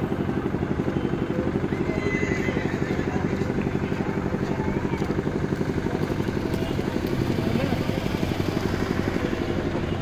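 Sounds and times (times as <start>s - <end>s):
engine idling: 0.0s - 10.0s
faint voices: 0.2s - 10.0s.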